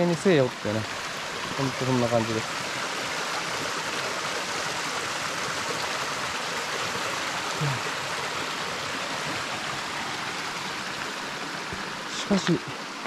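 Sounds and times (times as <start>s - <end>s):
stream rushing over rocks: 0.0s - 13.0s
person grunting: 7.5s - 7.9s.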